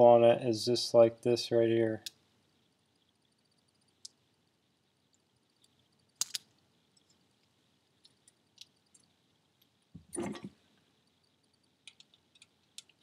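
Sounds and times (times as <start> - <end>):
sharp metal clicks: 6.2 - 7.1.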